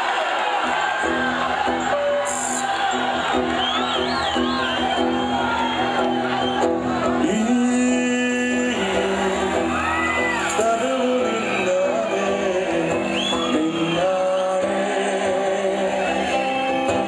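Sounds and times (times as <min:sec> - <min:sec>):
crowd shouting and whooping: 0:00.0 - 0:17.0
live band playing: 0:00.7 - 0:17.0
person singing: 0:07.0 - 0:17.0.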